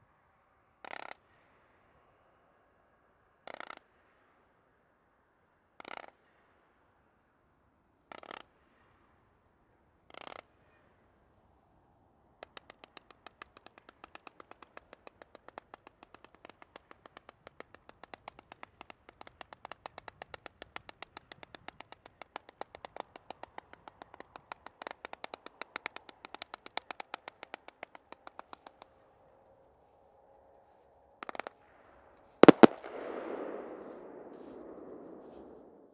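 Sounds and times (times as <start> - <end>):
fireworks cake firing pops: 32.4 - 35.9.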